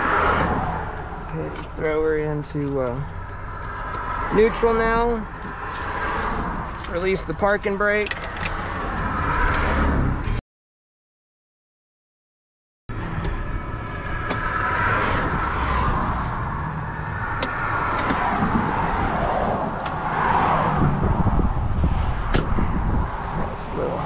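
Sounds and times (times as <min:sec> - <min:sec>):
vehicles passing on highway: 0:00.0 - 0:10.4, 0:12.9 - 0:24.0
car door clicks and knocks: 0:17.4 - 0:18.2.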